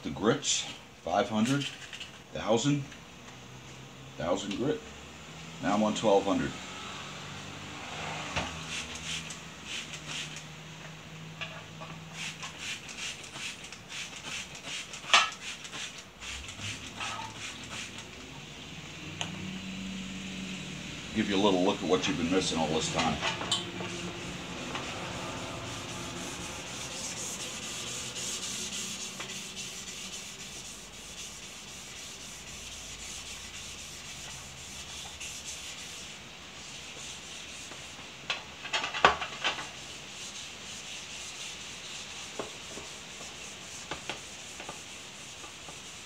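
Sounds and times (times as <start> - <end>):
sandpaper scratching on brass: 8.6 - 10.5, 12.1 - 18.2, 21.3 - 23.2, 23.8 - 38.1, 39.5 - 46.0.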